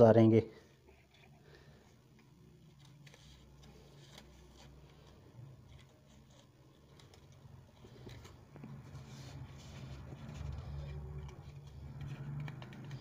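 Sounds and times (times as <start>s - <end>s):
paper rustling: 0.9s - 13.0s.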